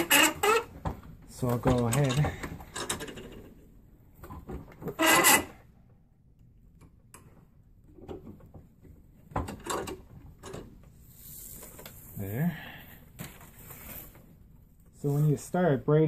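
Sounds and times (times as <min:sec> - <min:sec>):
strands rubbing and scraping: 0:11.0 - 0:12.5, 0:13.4 - 0:14.4.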